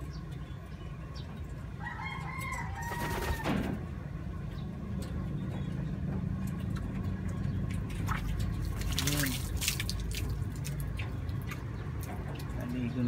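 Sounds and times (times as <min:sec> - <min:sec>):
rooster crowing: 0:01.8 - 0:03.7
water splash: 0:07.9 - 0:11.6.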